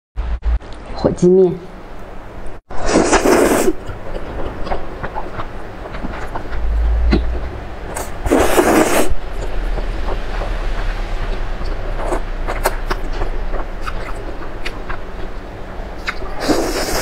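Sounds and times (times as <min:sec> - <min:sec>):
loud noodle slurp: 0:02.8 - 0:03.8, 0:07.9 - 0:09.2, 0:16.0 - 0:17.0
wet chewing with mouth clicks: 0:11.6 - 0:15.4, 0:16.0 - 0:17.0.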